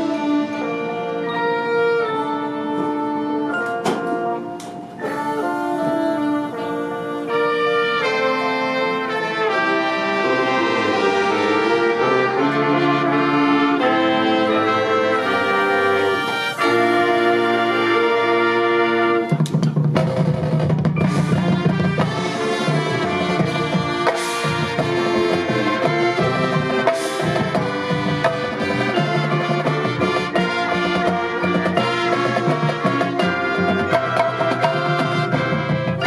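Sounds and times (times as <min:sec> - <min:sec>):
marching band playing: 0:00.0 - 0:36.0
percussion hits: 0:03.6 - 0:09.9, 0:15.1 - 0:36.0.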